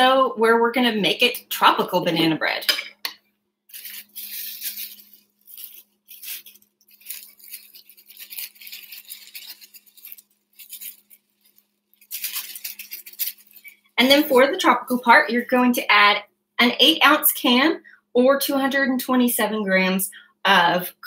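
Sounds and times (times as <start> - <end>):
plastic bag crinkling: 3.7 - 14.5.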